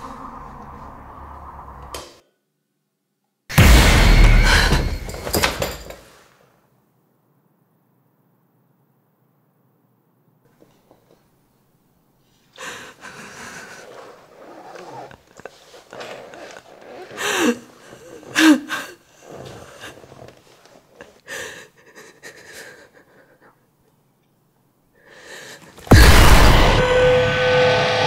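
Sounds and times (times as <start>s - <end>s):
woman breathing raggedly and gasping: 4.3s - 5.0s, 12.5s - 14.3s, 16.9s - 20.2s, 21.0s - 23.6s, 25.0s - 25.9s.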